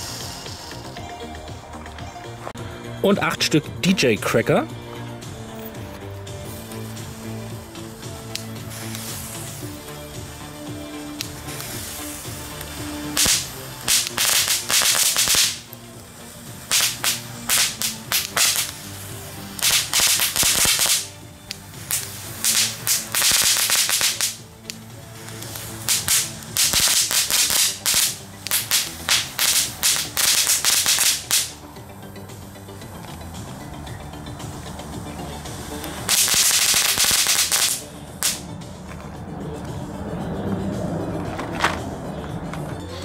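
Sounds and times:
firecrackers crackling: 0:00.0 - 0:43.0.

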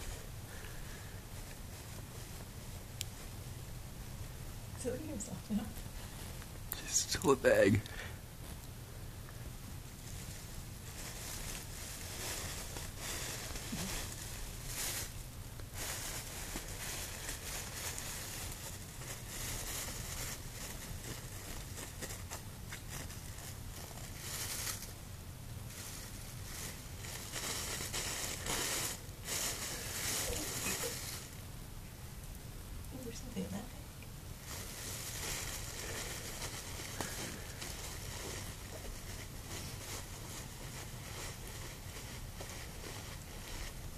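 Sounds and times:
plastic bag crinkling: 0:10.0 - 0:25.0, 0:25.6 - 0:31.4, 0:34.4 - 0:43.9.

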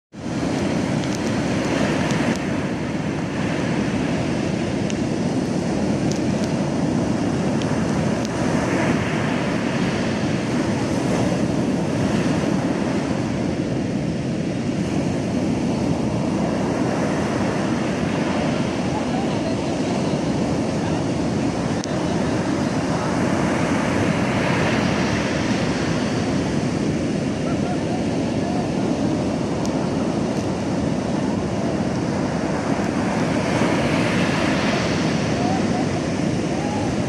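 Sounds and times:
waves breaking on beach: 0:00.1 - 0:37.0.

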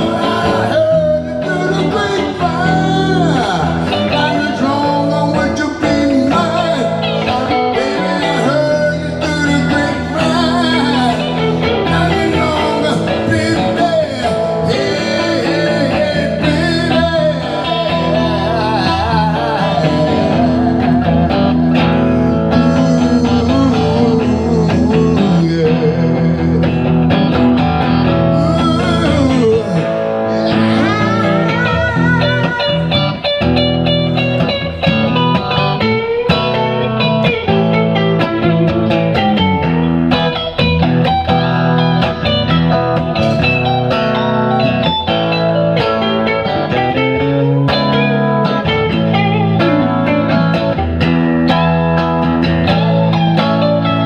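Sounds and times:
man singing: 0:00.0 - 0:39.4
electric guitars playing blues: 0:00.0 - 0:54.0.

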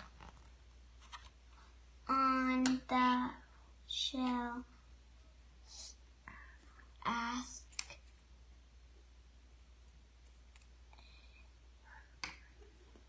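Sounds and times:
person's voice: 0:02.1 - 0:04.7, 0:07.0 - 0:07.9.

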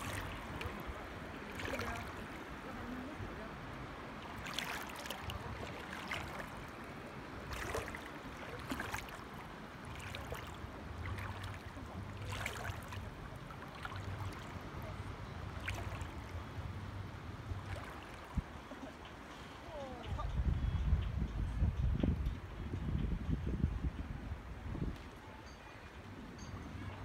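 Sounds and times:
small water splashes: 0:00.0 - 0:19.3
shallow sea water lapping: 0:00.0 - 0:20.4.

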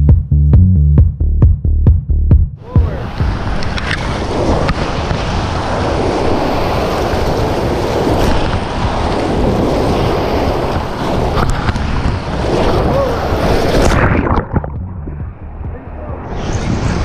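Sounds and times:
whitewater rapids rushing: 0:02.6 - 0:14.7.

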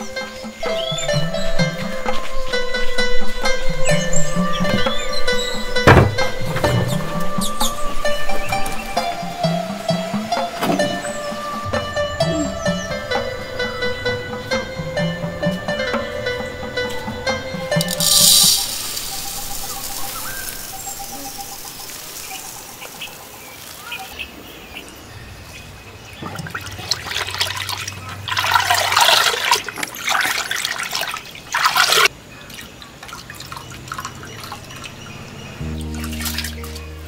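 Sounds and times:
rice pouring into clay bowl: 0:17.8 - 0:22.7.

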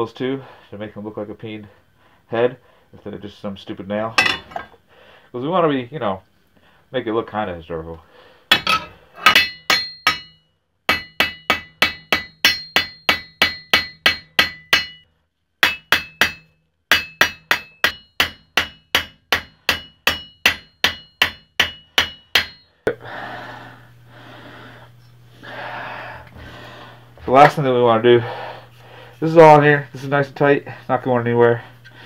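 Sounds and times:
hammer striking metal nails: 0:08.5 - 0:15.0, 0:15.6 - 0:22.7.

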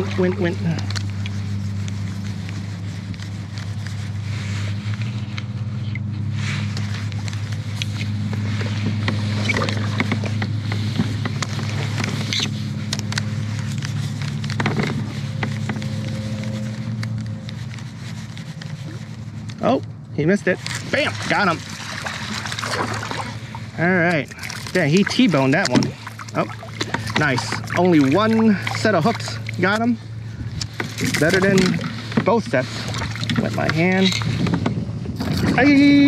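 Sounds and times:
wind buffeting microphone: 0:29.6 - 0:36.0.

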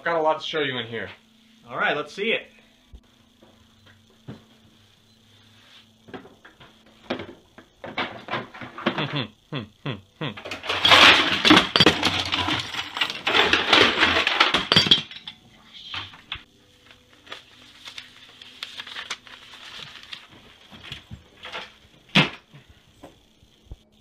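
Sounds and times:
small objects clattering: 0:10.4 - 0:16.2.

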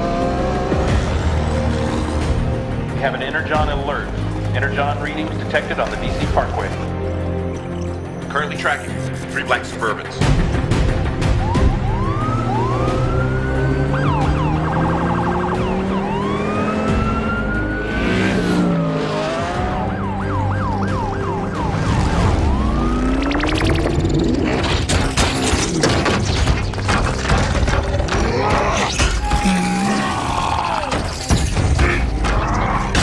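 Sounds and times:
police sirens wailing and yelping: 0:00.0 - 0:02.8, 0:11.2 - 0:24.6
background music: 0:00.0 - 0:33.0
car engines droning: 0:11.7 - 0:24.4.

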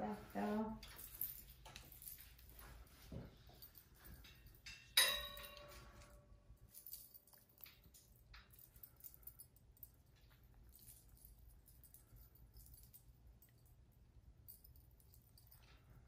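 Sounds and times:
bedding rustling and tapping: 0:00.0 - 0:13.0
metallic clink: 0:03.5 - 0:16.0.

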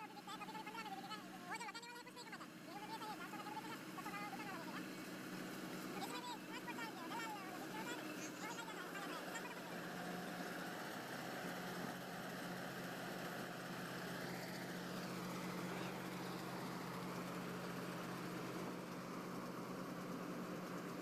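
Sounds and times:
combine harvester engine hum: 0:00.0 - 0:21.0
cutter and threshing gear noise: 0:02.7 - 0:21.0.

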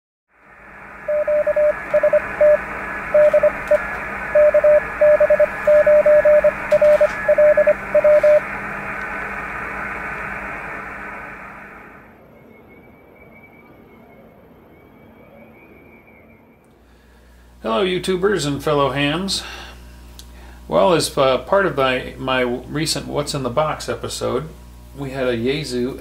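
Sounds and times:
morse code tone: 0:01.0 - 0:08.5
radio band hiss: 0:01.5 - 0:12.0.

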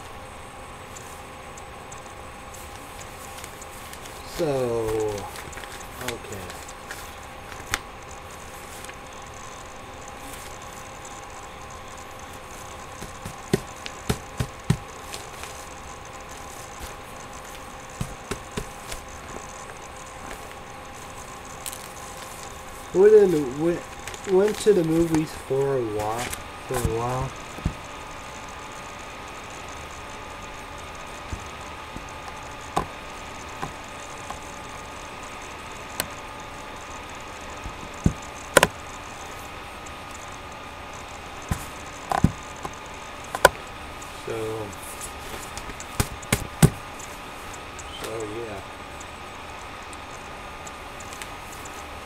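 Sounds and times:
faint constant tone: 0:00.0 - 0:52.0
low electrical hum: 0:00.0 - 0:52.0
steady hiss: 0:00.0 - 0:52.0
sharp knocks and clicks: 0:12.8 - 0:20.4, 0:26.2 - 0:27.9, 0:31.3 - 0:34.4, 0:37.6 - 0:38.8, 0:41.4 - 0:43.6, 0:45.6 - 0:47.1
short knocks and taps: 0:13.0 - 0:14.9, 0:17.9 - 0:19.0.

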